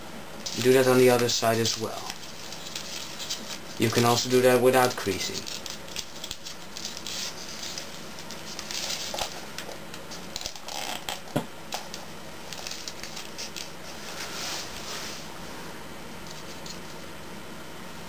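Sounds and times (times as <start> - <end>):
paper rustling and crackling: 0.4 - 11.1, 11.8 - 15.3.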